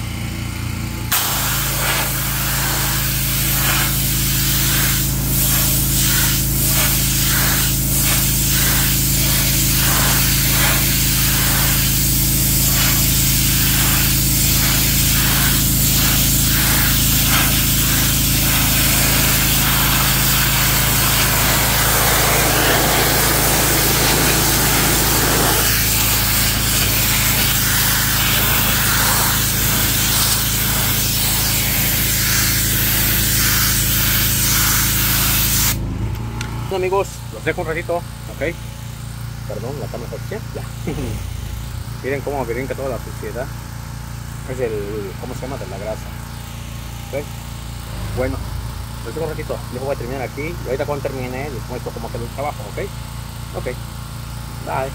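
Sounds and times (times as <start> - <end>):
pressure washer drone: 0.0 - 37.4, 38.0 - 54.9
water jet spraying on concrete: 1.1 - 35.8.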